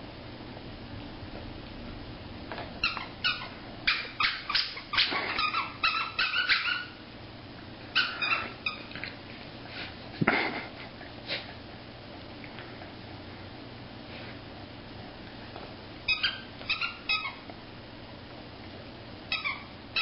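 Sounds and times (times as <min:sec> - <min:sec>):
dog squeaking and whimpering: 0:02.8 - 0:07.0, 0:07.9 - 0:09.0, 0:16.1 - 0:17.5, 0:19.3 - 0:20.0.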